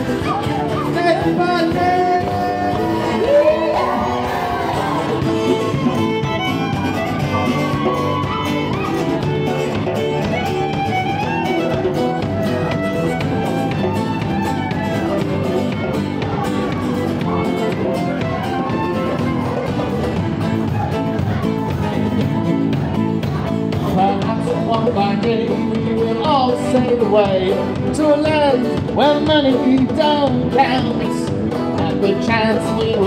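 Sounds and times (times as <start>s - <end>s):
fiddle melody: 0.0s - 27.7s
folk band playing: 0.0s - 33.0s.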